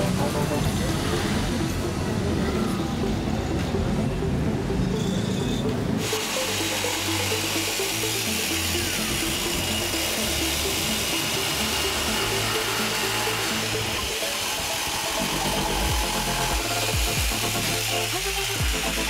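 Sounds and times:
background music with bass line: 0:00.0 - 0:19.0
jigsaw cutting wood: 0:06.0 - 0:19.0.

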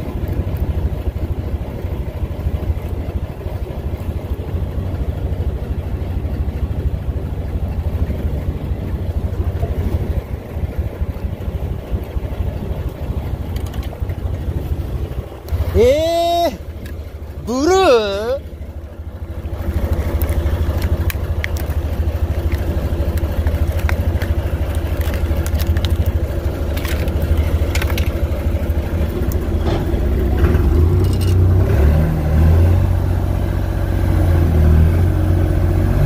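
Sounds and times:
boat engine running: 0:00.0 - 0:36.0
plastic packet crinkling: 0:22.4 - 0:28.2.

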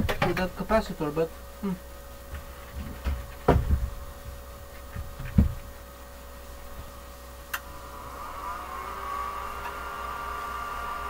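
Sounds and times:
plastic casing knocking and thumping: 0:00.0 - 0:00.5, 0:02.3 - 0:05.8
cooling fan whirring: 0:00.0 - 0:11.0.

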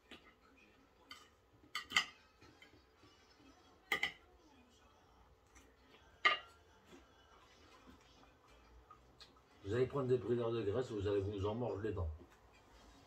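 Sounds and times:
cutlery clinking on plate: 0:01.0 - 0:02.8, 0:03.9 - 0:04.2, 0:06.2 - 0:06.6.

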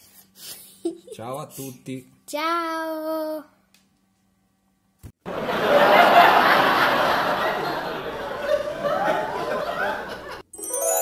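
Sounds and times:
person laughing: 0:00.4 - 0:01.6.

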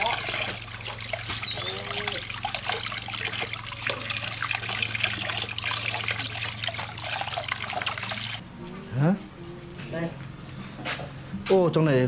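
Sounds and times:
small splashes: 0:00.0 - 0:08.4
water running and trickling: 0:00.0 - 0:08.4
steady low hum: 0:00.0 - 0:11.5.

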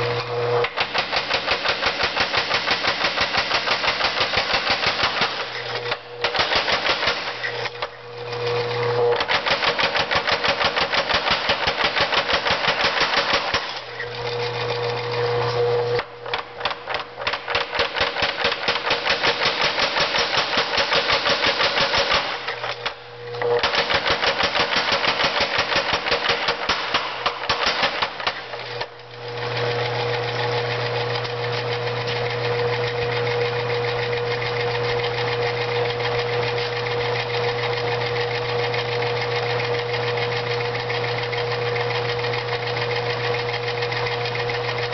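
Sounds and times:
power hammer striking hot iron: 0:00.0 - 0:32.2
drive motor humming: 0:00.0 - 0:44.9.

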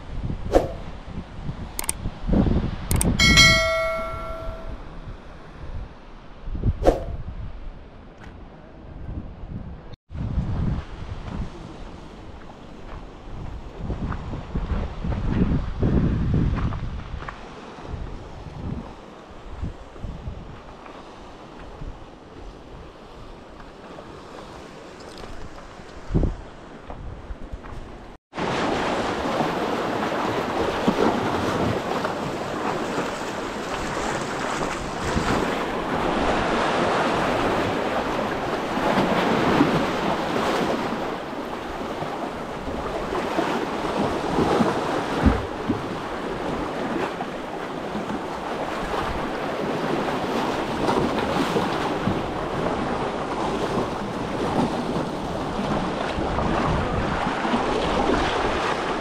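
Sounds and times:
wind buffeting microphone: 0:00.0 - 0:28.2, 0:28.8 - 0:59.0
sharp thump: 0:00.5 - 0:00.8
sea waves washing in: 0:28.3 - 0:59.0.

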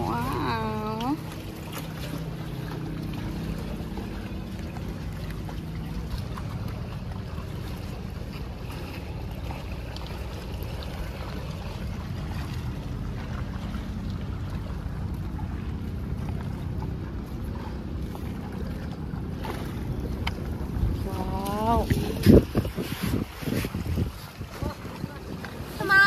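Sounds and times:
distant boat engine drone: 0:00.0 - 0:26.0
water lapping on rocks: 0:00.0 - 0:26.0
wind on microphone: 0:15.3 - 0:26.0.

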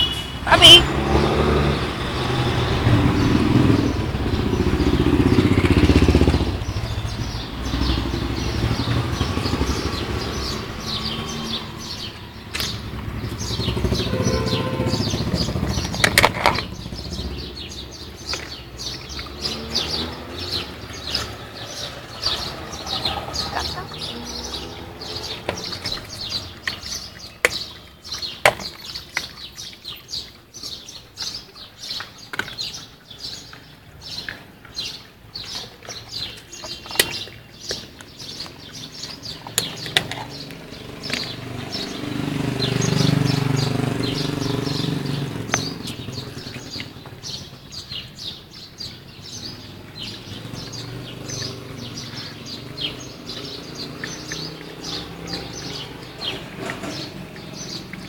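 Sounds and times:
motor vehicle rumbling past: 0:00.0 - 0:28.4, 0:32.6 - 0:58.0
small birds chirping: 0:00.0 - 0:58.0
sharp clicks and knocks: 0:15.6 - 0:16.8.

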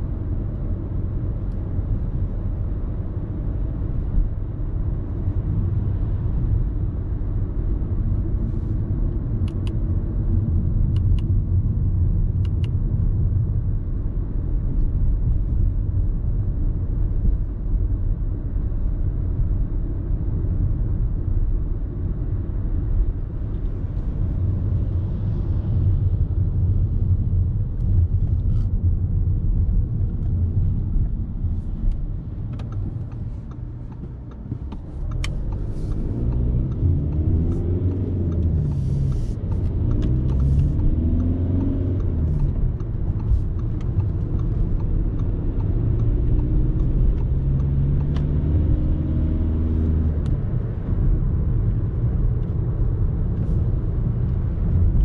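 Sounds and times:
road and tyre rumble: 0:00.0 - 0:55.0
car engine accelerating: 0:27.8 - 0:55.0.

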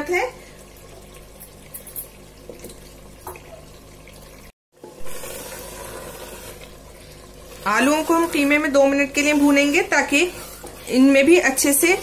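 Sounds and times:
spatula stirring: 0:04.8 - 0:12.0.

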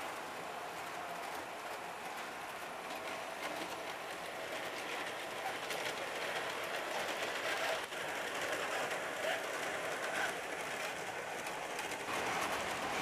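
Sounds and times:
model train rolling hum: 0:00.0 - 0:13.0.

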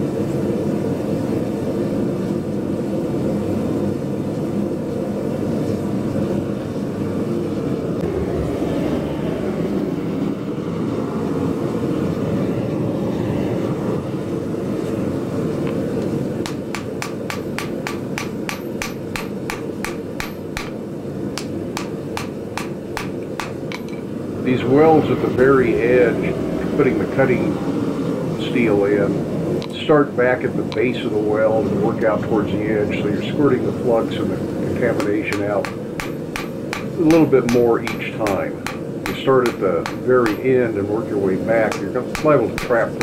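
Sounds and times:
forge roaring: 0:07.5 - 0:20.7
hammer blows on steel anvil: 0:16.5 - 0:20.8, 0:21.4 - 0:24.0, 0:34.8 - 0:40.8, 0:41.6 - 0:43.0.

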